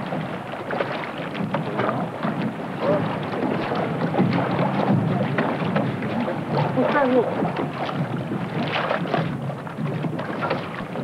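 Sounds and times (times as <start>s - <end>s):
water lapping at hull: 0.0s - 11.0s
wind buffeting microphone: 0.0s - 11.0s.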